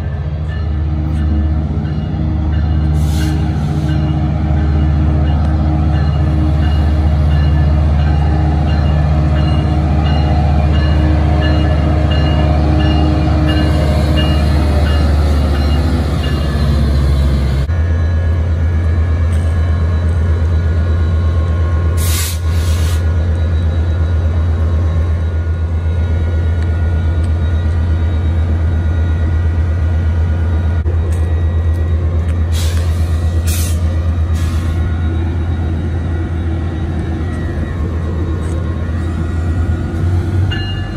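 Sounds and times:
diesel locomotive engine running: 0.0s - 40.9s
air brake hisses: 2.9s - 4.0s, 22.0s - 23.1s, 32.5s - 34.8s.

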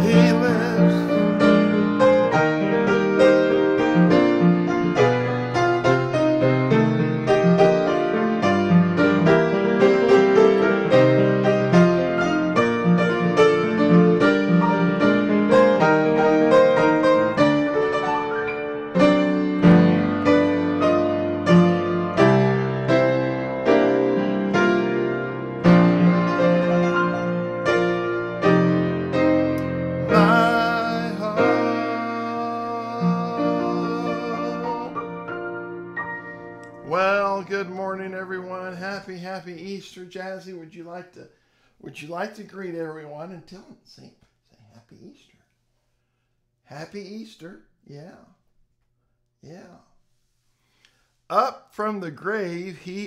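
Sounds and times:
grand piano playing: 0.0s - 39.8s.

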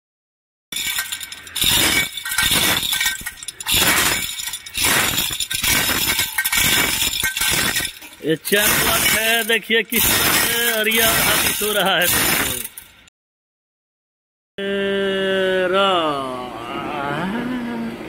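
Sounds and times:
chain links rattling through hoist: 0.7s - 13.0s.

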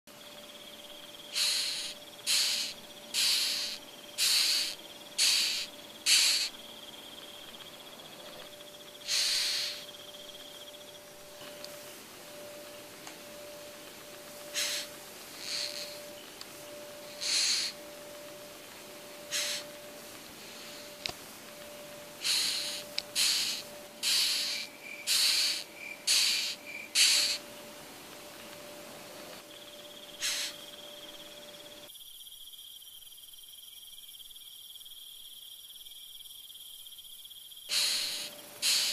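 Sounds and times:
high pulsing insect trill: 0.1s - 38.9s
beetle hissing rasps: 1.2s - 6.7s, 8.9s - 10.2s, 14.4s - 16.2s, 17.0s - 18.0s, 19.2s - 21.1s, 22.2s - 27.4s, 30.1s - 30.9s, 37.7s - 38.9s.

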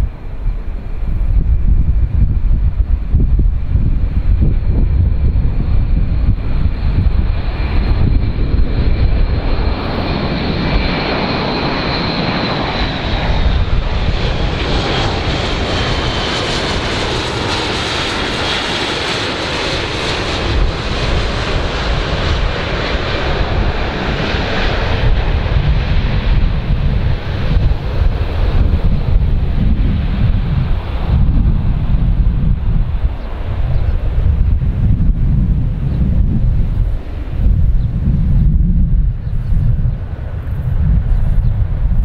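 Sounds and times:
propeller aircraft roaring overhead: 0.0s - 42.0s.

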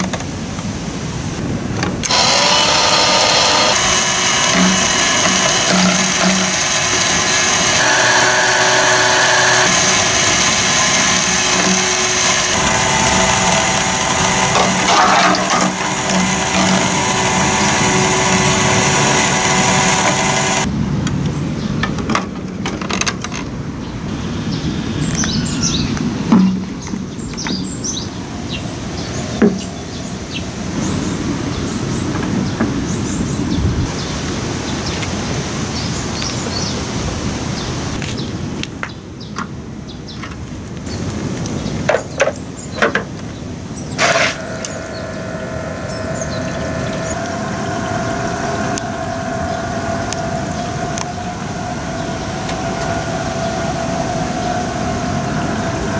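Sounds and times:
toy motor and gear whine: 2.0s - 20.7s, 43.9s - 55.9s
birds chirping: 23.8s - 35.0s, 37.5s - 55.9s.

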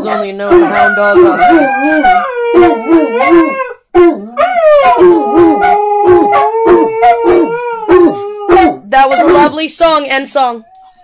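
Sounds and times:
dog long steady howls: 0.0s - 8.8s.

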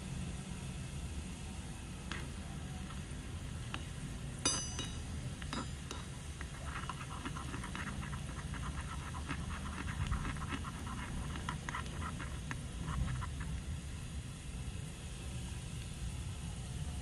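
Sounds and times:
metal clink: 4.4s - 6.1s.

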